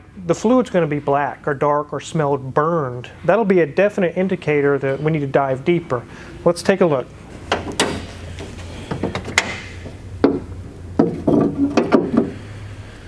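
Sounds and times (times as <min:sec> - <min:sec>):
steady low hum: 0:00.0 - 0:13.0
metal clicks and clunks of car hood: 0:07.4 - 0:12.4.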